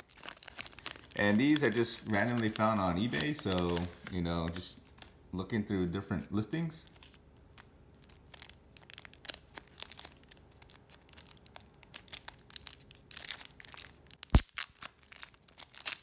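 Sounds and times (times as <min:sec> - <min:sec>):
plastic wrap crinkling and tearing: 0:00.0 - 0:05.2, 0:06.8 - 0:16.0.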